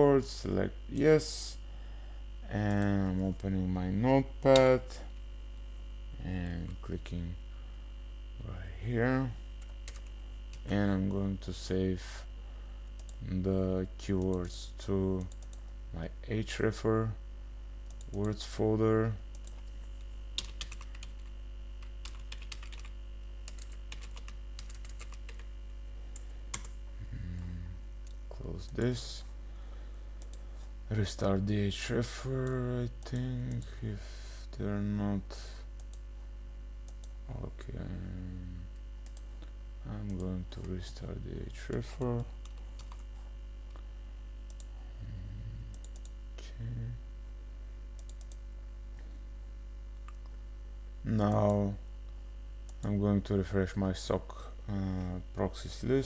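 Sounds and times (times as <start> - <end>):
low electrical hum: 0.0 - 56.0
computer keyboard typing: 9.6 - 10.7, 20.4 - 25.5, 26.1 - 26.8, 41.7 - 43.1, 48.0 - 48.4.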